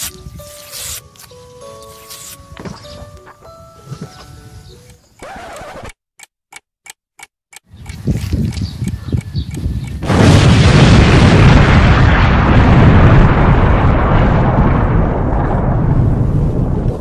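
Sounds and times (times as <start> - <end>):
explosion blast and rumble: 10.0 - 17.0.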